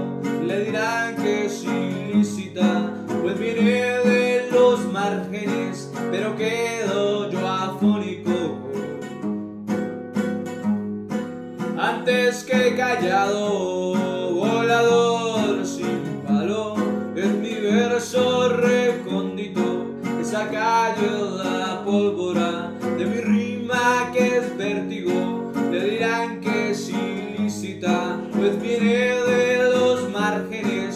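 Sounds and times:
man singing: 0:00.0 - 0:09.3, 0:11.6 - 0:30.9
strummed string instrument: 0:00.0 - 0:30.9.

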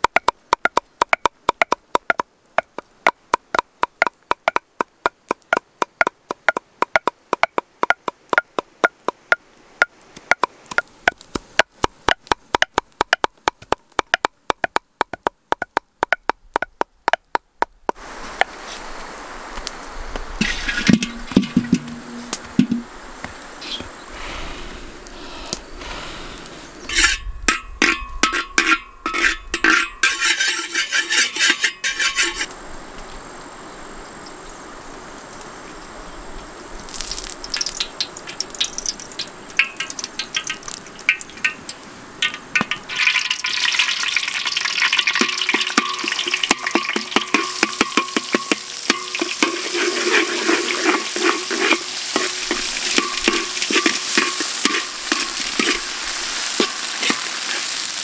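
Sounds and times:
sharp knocks: 0:00.0 - 0:09.4, 0:20.8 - 0:22.9
spatula scraping a wok: 0:20.4 - 0:22.5, 0:26.8 - 0:32.5, 0:44.5 - 0:57.8
food sizzling in a wok: 0:26.0 - 0:58.0
oil crackling in a wok: 0:36.8 - 0:58.0.

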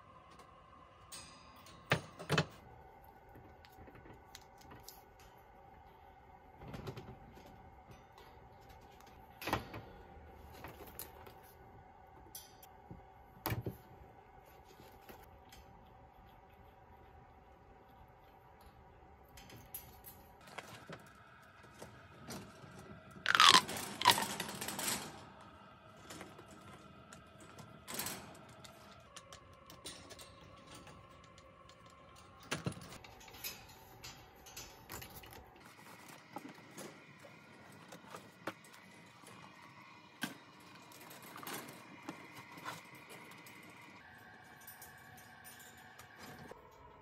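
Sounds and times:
plastic toys tapping wire bars: 0:23.3 - 0:25.2.

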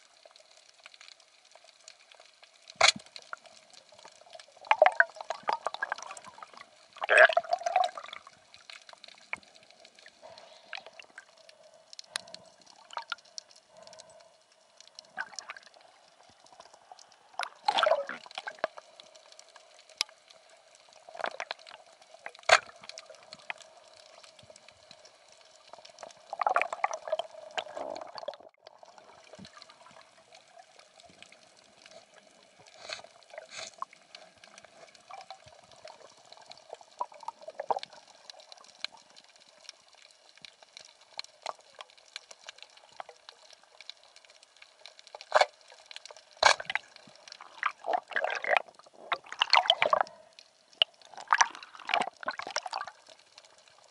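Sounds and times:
underwater bubbles gurgling: 0:00.0 - 0:53.9.

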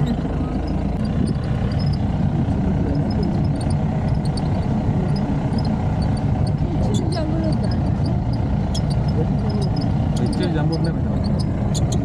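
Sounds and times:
jeep engine running: 0:00.0 - 0:12.0.

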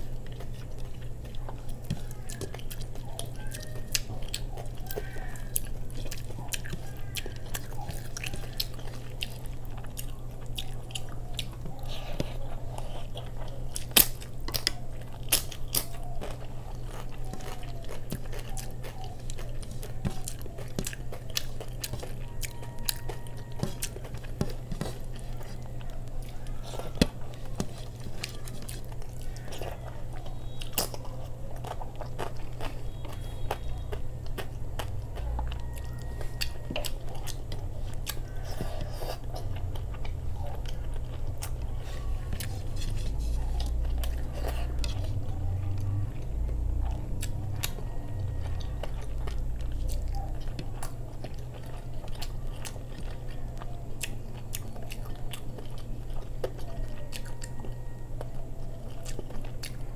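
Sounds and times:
person chewing food: 0:00.0 - 0:59.9
steady low hum: 0:00.0 - 0:59.9.

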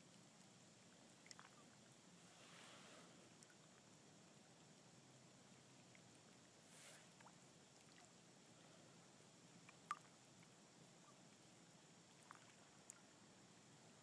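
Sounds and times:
faint background hiss: 0:00.0 - 0:14.0.

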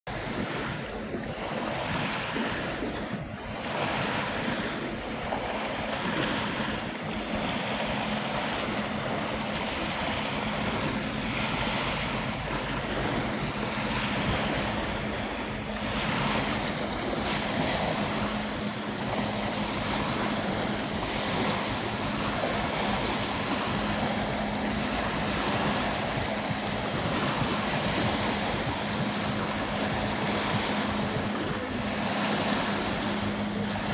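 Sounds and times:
small waves breaking on shore: 0:00.1 - 0:33.9
steady low hum: 0:00.1 - 0:33.9
wind gusts on microphone: 0:00.1 - 0:33.9.

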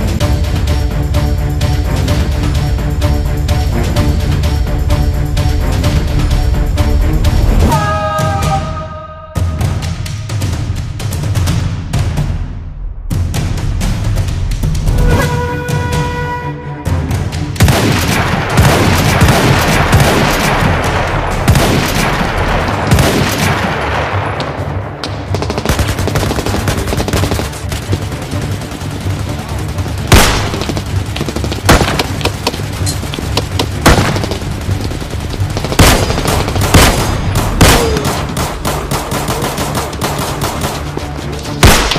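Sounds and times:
gunshots: 0:17.6 - 0:41.0, 0:41.6 - 0:41.9.

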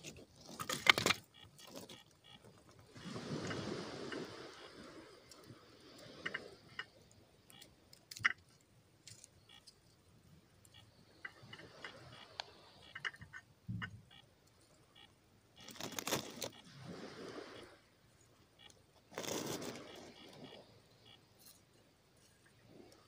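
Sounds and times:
rustling: 0:15.6 - 0:16.6
knife shaving wood: 0:15.7 - 0:16.5.

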